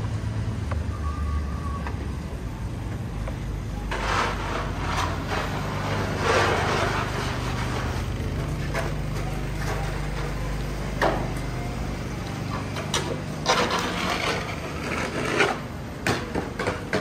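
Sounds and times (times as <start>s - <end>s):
low traffic rumble: 0.0s - 17.0s
snow shovel scraping slush: 3.9s - 8.3s, 13.5s - 15.6s.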